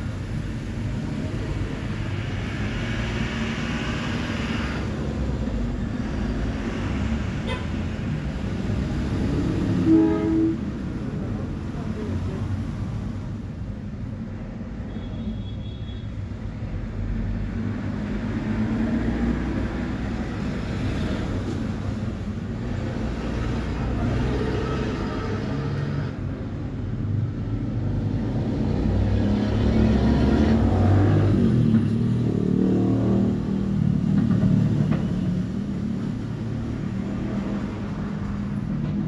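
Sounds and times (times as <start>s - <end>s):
motor vehicle rumble: 16.4s - 39.0s.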